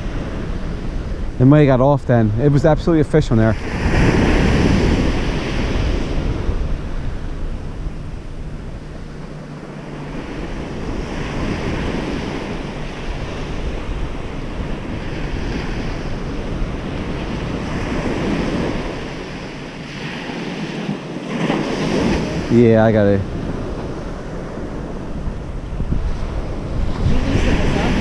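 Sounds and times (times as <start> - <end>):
ocean surf on beach: 0.0 - 28.0
wind rumbling on microphone: 0.0 - 28.0.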